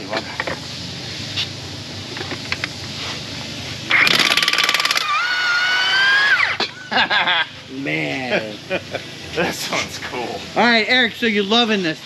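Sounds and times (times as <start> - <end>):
impact wrench hammering: 3.9 - 5.2
impact wrench whining: 3.9 - 6.8.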